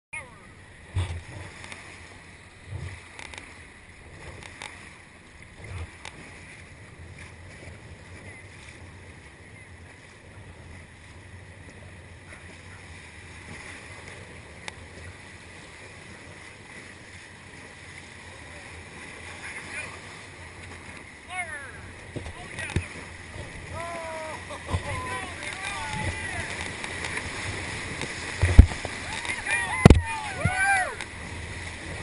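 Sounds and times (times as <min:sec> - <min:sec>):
river water rushing: 0:00.2 - 0:32.0
low thumps: 0:02.6 - 0:03.0, 0:24.6 - 0:30.6.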